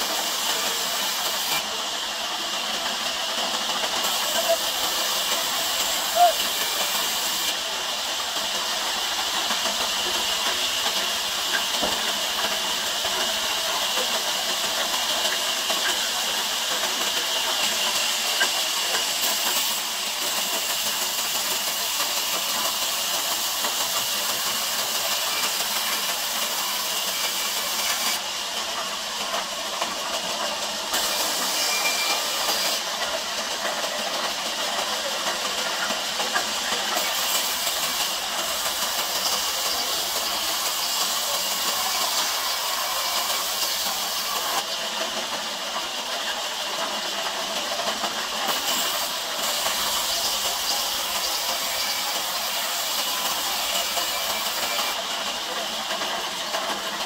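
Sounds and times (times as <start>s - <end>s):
band saw cutting log: 0.0s - 1.7s, 4.0s - 7.6s, 31.0s - 32.9s, 48.4s - 55.0s.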